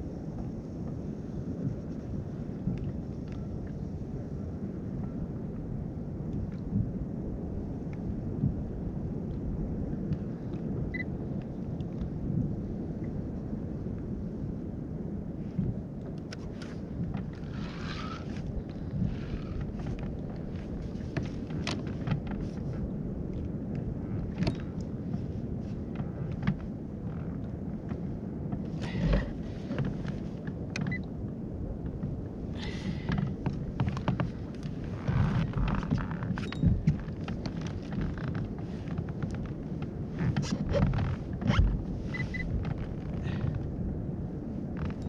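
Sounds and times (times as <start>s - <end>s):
wind rumble on microphone: 0.0s - 45.0s.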